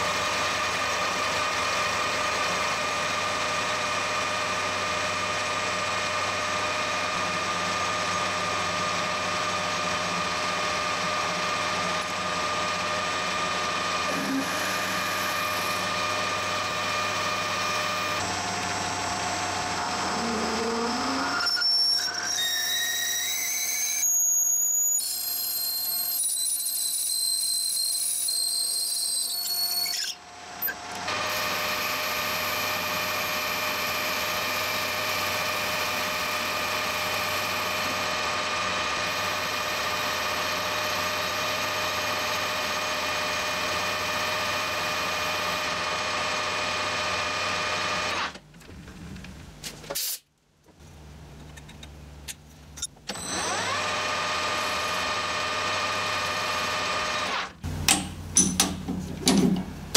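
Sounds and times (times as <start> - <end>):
metal lathe drilling brass: 10.6 - 18.7, 19.8 - 48.3, 53.1 - 57.6
boring tool cutting metal: 10.6 - 18.8, 19.8 - 48.3, 52.3 - 59.4.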